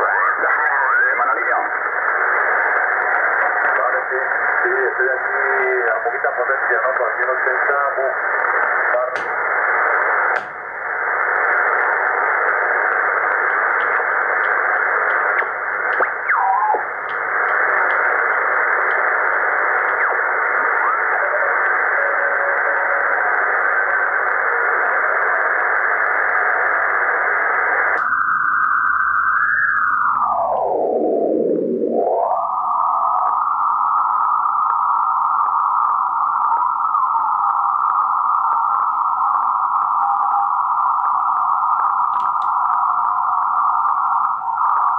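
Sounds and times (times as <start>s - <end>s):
shortwave radio static: 0.0s - 44.9s
radio dial click: 8.5s - 20.8s, 42.2s - 42.6s
faint whistles in static: 19.4s - 24.2s, 33.2s - 42.1s.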